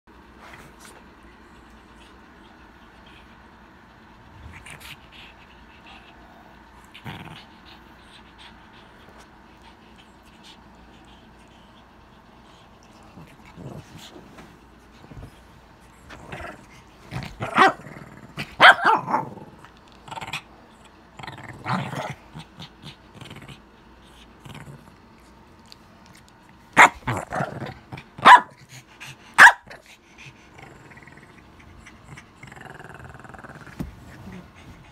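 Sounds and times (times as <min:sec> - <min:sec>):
dog growling: 0:01.8 - 0:14.3, 0:15.8 - 0:25.8, 0:26.8 - 0:34.9
dog barking: 0:18.6 - 0:19.2, 0:26.8 - 0:27.0, 0:28.2 - 0:28.6, 0:29.4 - 0:29.7.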